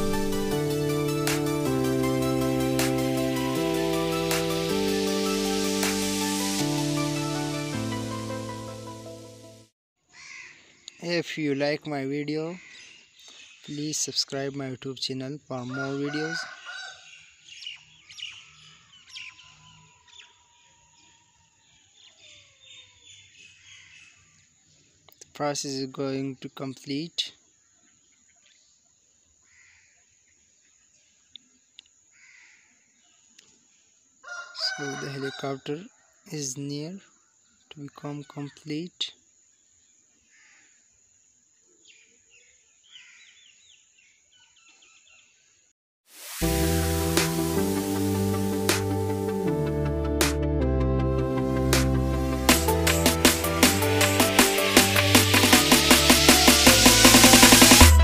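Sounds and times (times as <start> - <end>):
faint birds chirping: 10.2 - 34.6
distant bird chirps: 15.5 - 25.4.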